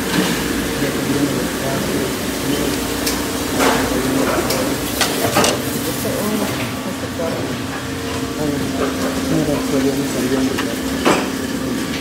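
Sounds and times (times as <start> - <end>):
low machine hum: 0.0 - 12.0
dishes clattering: 3.0 - 5.7.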